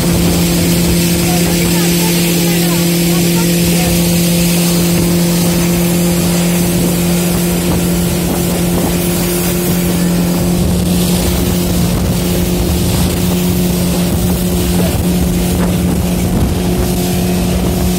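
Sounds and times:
speedboat engine drone: 0.0 - 17.9
wind and water hiss: 0.0 - 17.9.

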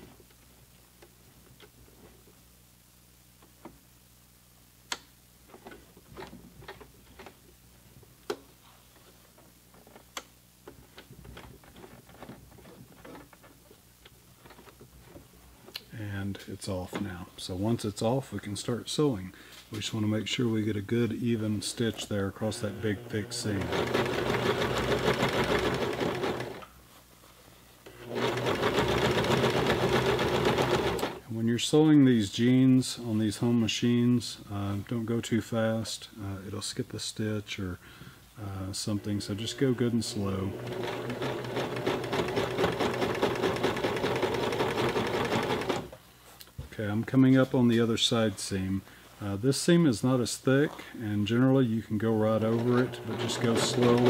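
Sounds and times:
sewing machine stitching: 22.5 - 26.6, 27.9 - 31.2, 40.0 - 45.9, 52.4 - 54.0
sharp sewing machine clacks: 40.6 - 45.9.

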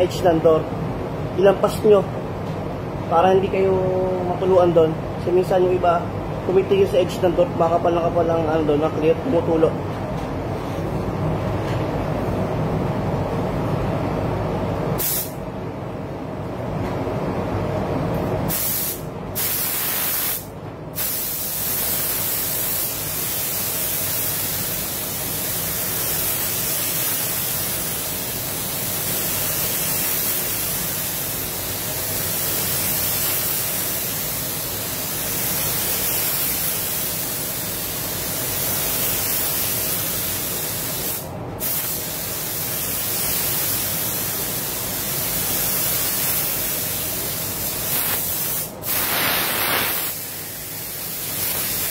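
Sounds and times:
ventilation hum: 0.0 - 51.9
spray gun hissing: 15.0 - 15.4, 18.5 - 51.9.

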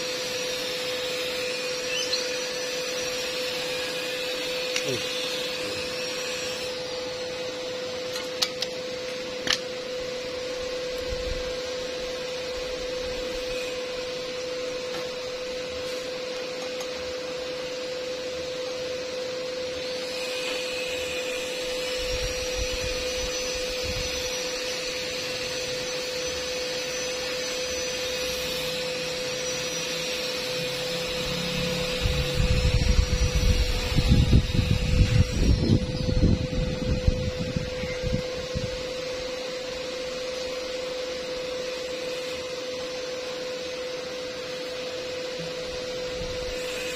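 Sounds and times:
machine hum and hiss: 0.0 - 46.9
mid-pitched whine: 0.0 - 46.9
faint high wavering whistles: 1.0 - 5.0, 19.8 - 39.5.

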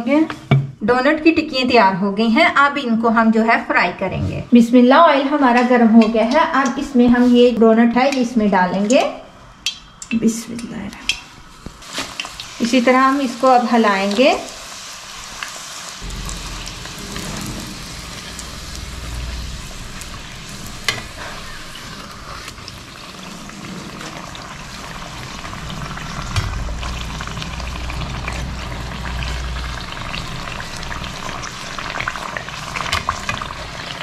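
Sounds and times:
oil sizzling and crackling: 11.1 - 34.0.

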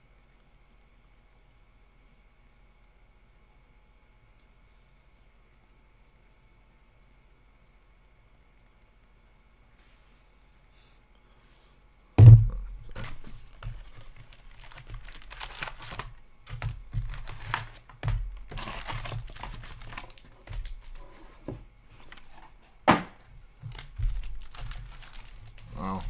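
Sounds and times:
loud thump: 12.2 - 12.9, 22.9 - 23.2
foil packs rustling and crinkling: 12.8 - 22.6, 23.6 - 26.0.

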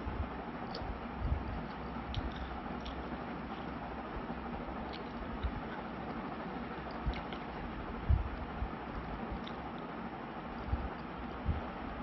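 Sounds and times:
person chewing food: 0.7 - 4.0, 4.6 - 9.9
soft low thumps: 1.2 - 1.6, 8.0 - 9.2, 10.7 - 11.7.

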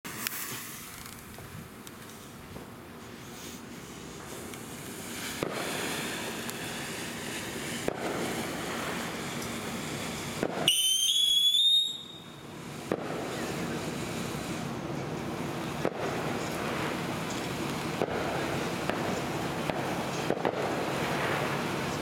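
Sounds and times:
firework fountain hissing: 0.0 - 22.0
whistle rising in pitch: 10.7 - 12.4.

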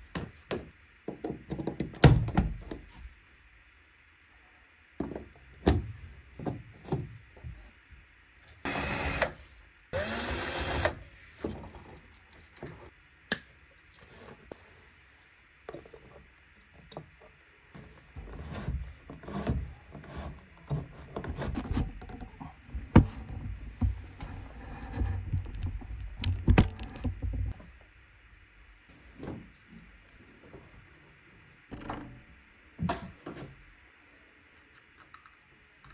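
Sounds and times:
cordless power driver whirring: 8.7 - 9.3, 10.0 - 11.0.

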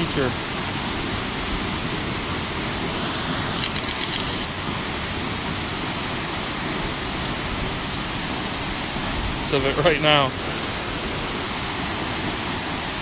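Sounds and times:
waterfall rushing: 0.0 - 13.0
sharp high ticks: 3.6 - 4.5
short high beep: 3.7 - 4.5.

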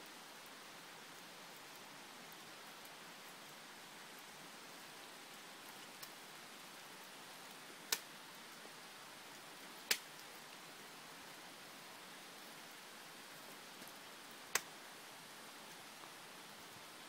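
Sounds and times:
light rain hiss: 0.0 - 17.0.

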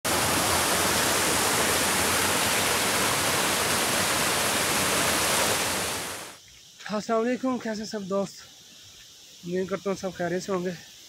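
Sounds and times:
water rushing over rocks: 0.0 - 6.4.

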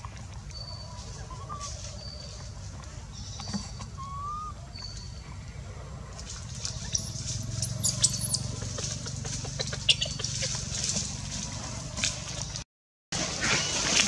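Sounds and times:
dry leaves crackling: 1.0 - 2.7, 6.3 - 12.6
monkey high-pitched squeaks: 6.8 - 8.6.

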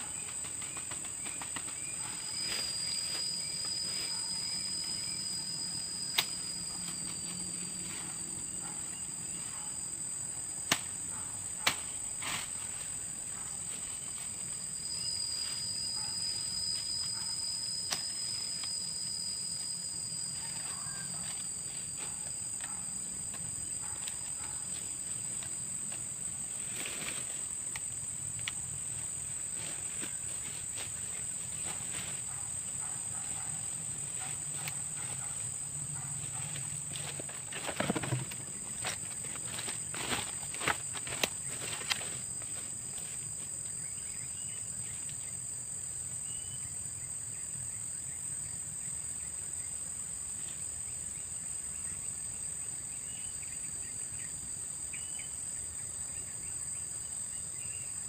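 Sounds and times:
insects droning: 0.0 - 58.0
sharp snaps: 10.7 - 11.0.

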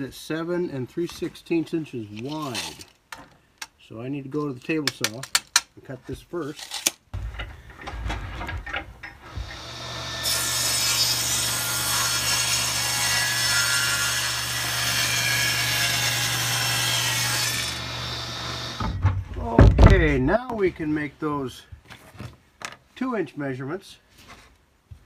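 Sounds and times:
saw ripping wood board: 2.2 - 3.0, 6.5 - 7.0
table saw motor humming: 9.2 - 12.8, 14.2 - 18.9
handling knocks: 18.8 - 20.3.

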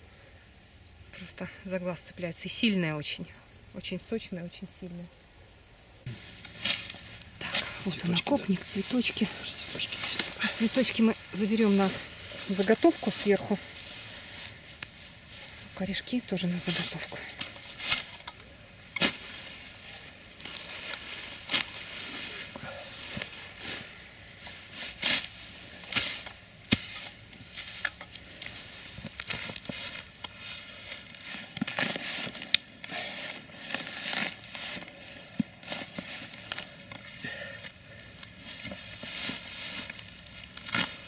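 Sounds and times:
rustling grass and leaves: 0.0 - 41.0
spade chopping into soil: 19.0 - 19.2, 25.9 - 28.1.

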